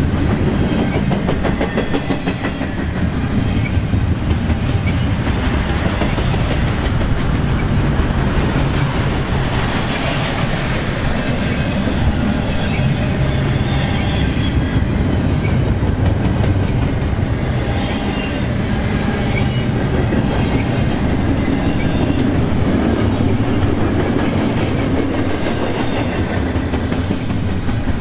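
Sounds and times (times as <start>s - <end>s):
train wheels rumbling on rails: 0.0s - 28.0s.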